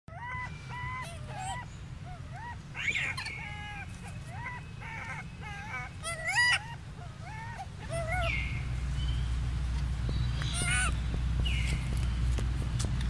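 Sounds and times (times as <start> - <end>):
infant monkey sharp cries: 0.1 - 8.6, 10.4 - 11.0
infant monkey cooing and squeaking: 0.1 - 8.8, 10.2 - 12.0.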